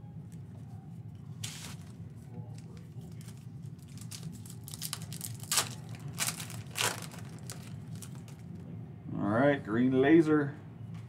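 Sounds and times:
foil wrapper tearing and crinkling: 2.6 - 8.5.

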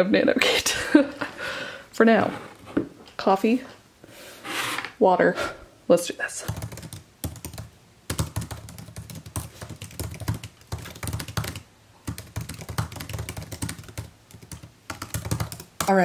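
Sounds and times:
fast typing on laptop keyboard: 6.4 - 16.0.

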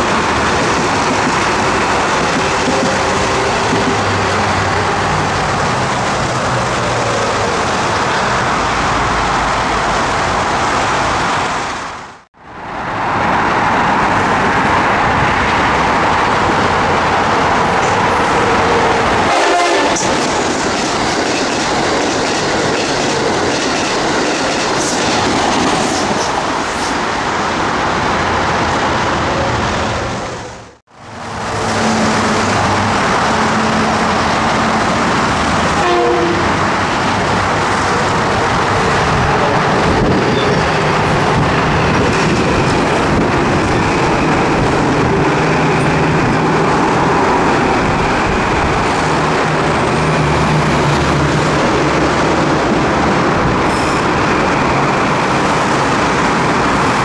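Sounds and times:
electric train passing: 0.0 - 57.0
train horn: 19.2 - 20.1, 35.7 - 36.6.

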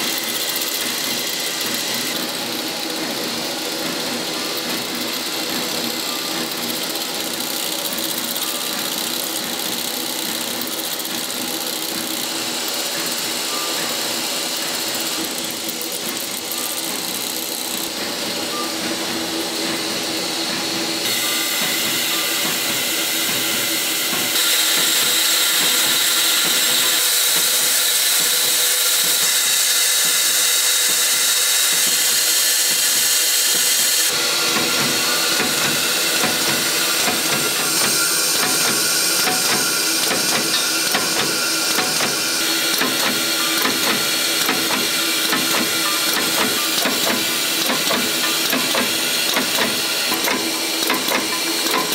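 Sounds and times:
constant machine hiss: 0.0 - 51.9
machine hum: 34.1 - 51.9.

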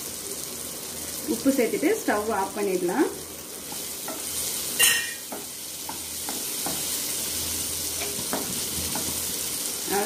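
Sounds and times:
food sizzling in oil: 0.0 - 10.0
spatula tapping pan: 3.7 - 7.1, 8.0 - 9.4.

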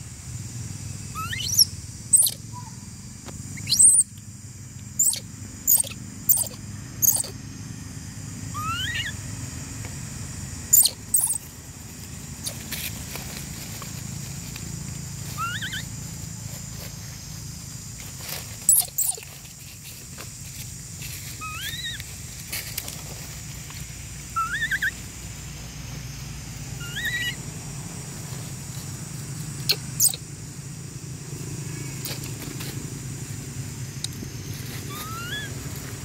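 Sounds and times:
low background hum: 0.0 - 36.0
monkeys giving squeaky calls: 1.2 - 2.7, 3.6 - 4.1, 5.0 - 7.3, 8.6 - 9.2, 10.7 - 11.4, 15.4 - 15.9, 18.7 - 19.2, 21.4 - 22.0, 24.4 - 25.0, 26.8 - 27.4, 29.7 - 30.2, 34.9 - 35.5.

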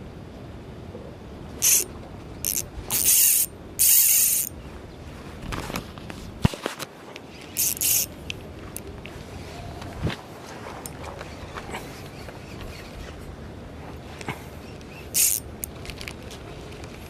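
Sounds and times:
fishing reel drag buzzing: 1.6 - 4.6, 7.4 - 8.1, 14.6 - 15.7.

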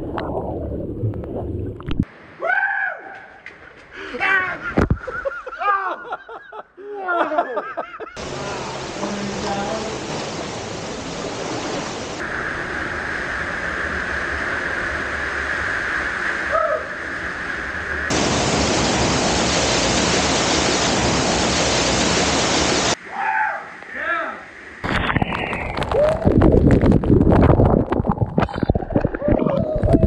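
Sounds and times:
small waterfall rushing: 8.2 - 14.7, 18.1 - 23.0.

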